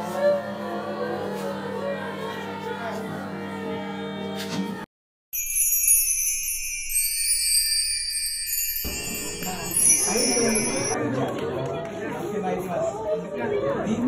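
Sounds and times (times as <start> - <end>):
music: 0.0 - 4.9, 5.6 - 12.6
jingle-bell sting: 5.4 - 11.0
voices: 9.2 - 14.0.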